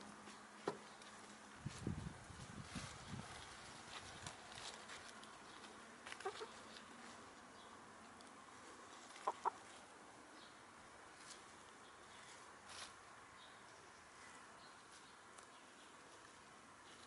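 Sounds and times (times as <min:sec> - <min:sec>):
faint rustling in grass: 0:00.0 - 0:17.0
hen clucking: 0:06.1 - 0:06.8, 0:09.0 - 0:09.7.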